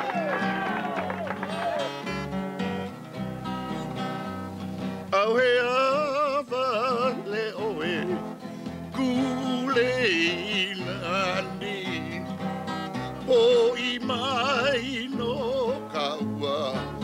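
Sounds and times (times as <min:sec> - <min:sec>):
acoustic guitar strumming: 0:00.0 - 0:17.0
person singing with vibrato: 0:05.1 - 0:08.3, 0:08.9 - 0:12.3, 0:13.2 - 0:17.0.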